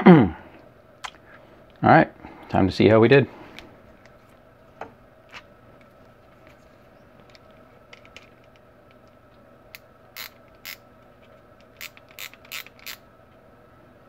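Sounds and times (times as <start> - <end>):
faint steady hum: 0.0 - 14.0
micrometer ratchet clicking: 9.7 - 10.8, 11.6 - 13.0.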